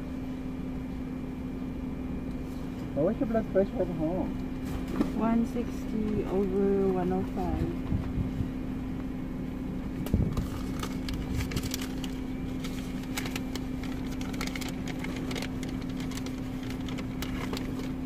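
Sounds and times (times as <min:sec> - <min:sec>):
paper rustling: 0:10.3 - 0:18.0.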